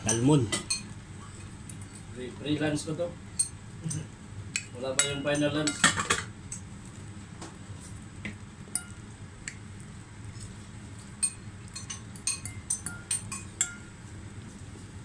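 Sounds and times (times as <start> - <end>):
low room hum: 0.0 - 15.0
cutlery clinking against bowl: 0.1 - 1.0, 3.4 - 6.3, 8.8 - 9.6, 11.0 - 14.0.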